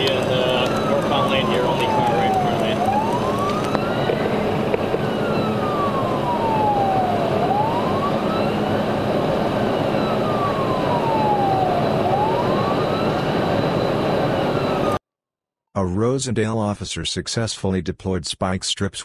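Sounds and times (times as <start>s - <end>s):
police siren wailing: 0.0s - 15.0s
road noise: 0.0s - 15.0s.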